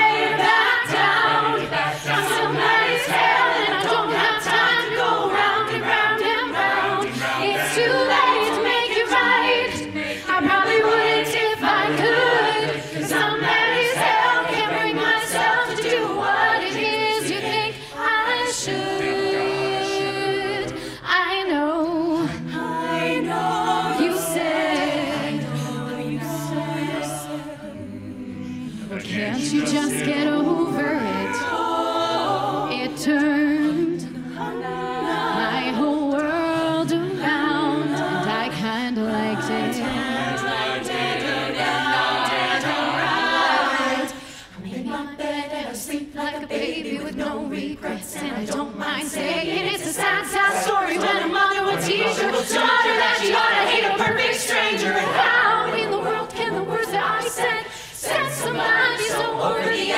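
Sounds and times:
woman singing lead: 0.0 - 41.7
a cappella group singing: 0.0 - 59.9.

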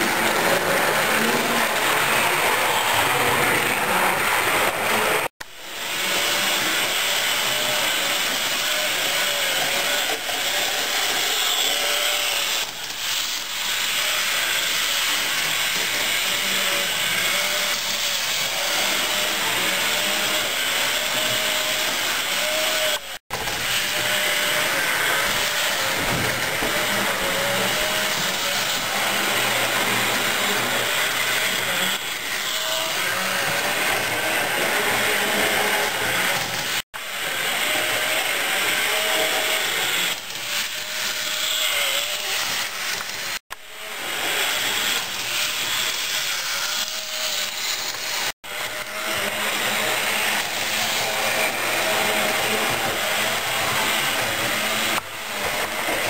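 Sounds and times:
model train whirring on track: 0.0 - 22.4.

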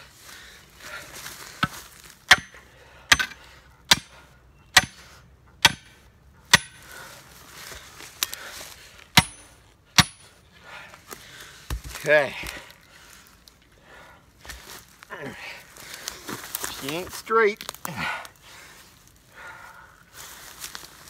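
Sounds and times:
hammer striking steel post: 1.6 - 5.0, 5.6 - 6.8, 9.2 - 10.3.

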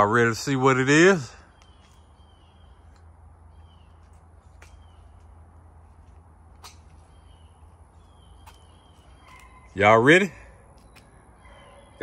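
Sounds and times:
faint bird chirps: 1.3 - 5.4, 6.6 - 12.0.

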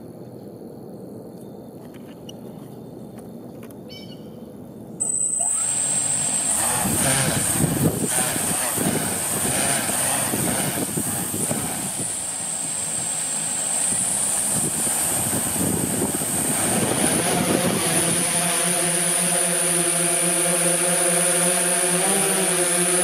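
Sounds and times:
drone hum: 0.6 - 23.0
drone motors whirring: 5.0 - 23.0.

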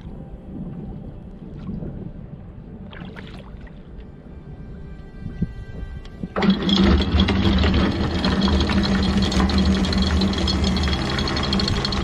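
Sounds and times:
anchor windlass motor hum: 6.0 - 12.0.

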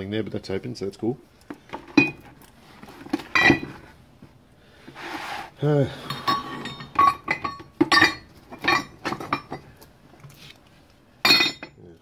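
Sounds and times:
metal parts clanking in bucket: 1.7 - 2.4, 3.0 - 3.9, 6.0 - 9.7, 11.3 - 11.8.

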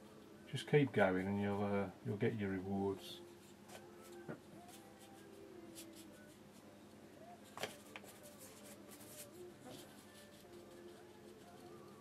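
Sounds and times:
brush scratching on paper: 7.8 - 12.0.

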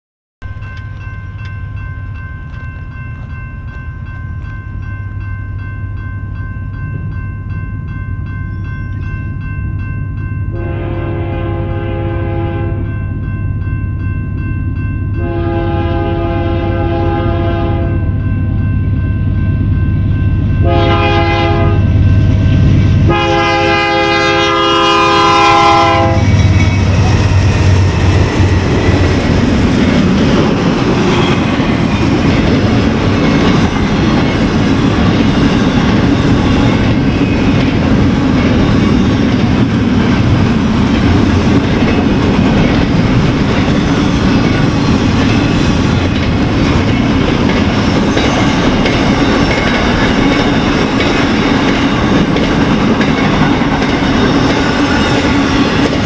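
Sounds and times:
locomotive horn blasts: 10.5 - 12.9, 15.2 - 18.1, 20.6 - 22.0, 23.1 - 26.3
freight cars rumbling and clacking: 26.1 - 56.0.

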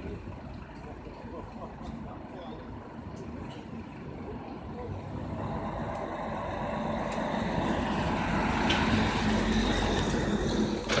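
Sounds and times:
street traffic noise: 0.0 - 11.0
truck engine passing: 4.8 - 11.0.

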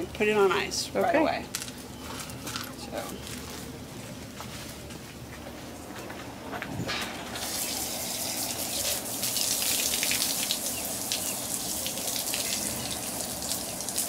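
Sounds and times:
garden hose water spraying: 7.2 - 14.0.

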